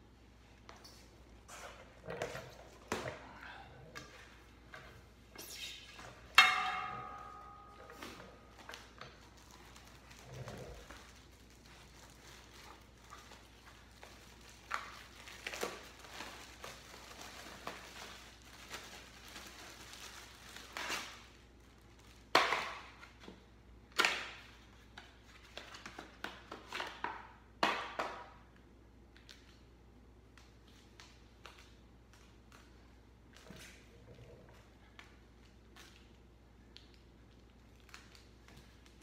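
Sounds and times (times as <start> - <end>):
cardboard and plastic rustling: 7.8 - 23.3.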